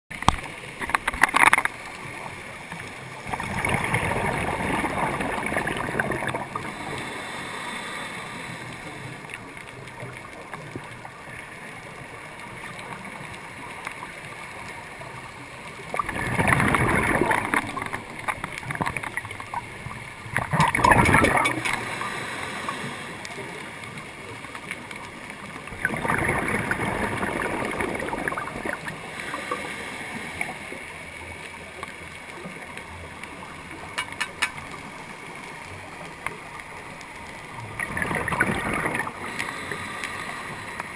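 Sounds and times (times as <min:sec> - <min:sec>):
diver's bubbles gurgling: 0:00.2 - 0:07.2, 0:15.8 - 0:30.7, 0:35.9 - 0:39.8
low hiss of water: 0:00.4 - 0:40.9.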